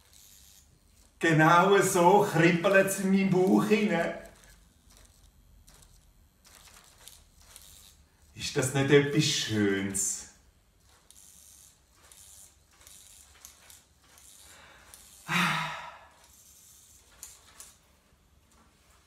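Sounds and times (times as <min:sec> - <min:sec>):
toy wing mechanism whirring: 0:00.0 - 0:19.0
small clicks: 0:03.4 - 0:08.3, 0:10.8 - 0:15.2, 0:16.2 - 0:17.8
man humming briefly: 0:15.3 - 0:16.1.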